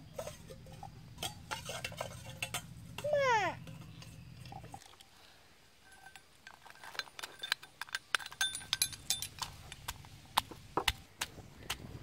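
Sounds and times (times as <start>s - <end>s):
spoon clinking on stone mortar: 0.1s - 4.7s, 5.8s - 10.0s.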